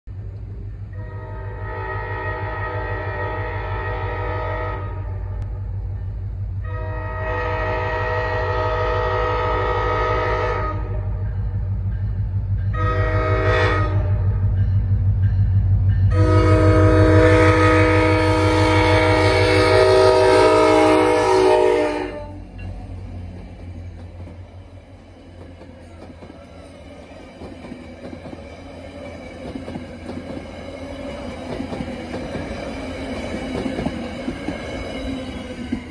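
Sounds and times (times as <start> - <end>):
train rumble: 0.1 - 35.9
train air horn blasts: 0.9 - 5.7, 6.6 - 11.4, 12.7 - 14.6, 16.1 - 22.5.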